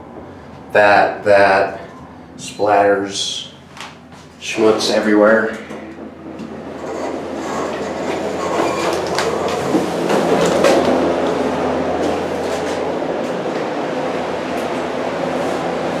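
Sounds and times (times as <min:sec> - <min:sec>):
machinery rumbling with low hum: 0:00.0 - 0:16.0
footsteps on concrete floor: 0:08.0 - 0:13.7.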